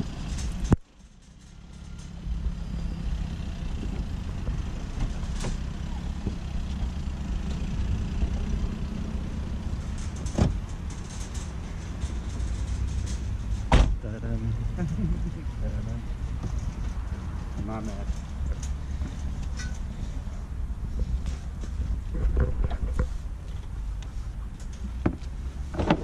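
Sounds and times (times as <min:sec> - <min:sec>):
traffic and engines rumble: 0:00.0 - 0:26.0
loud thud: 0:13.6 - 0:14.0.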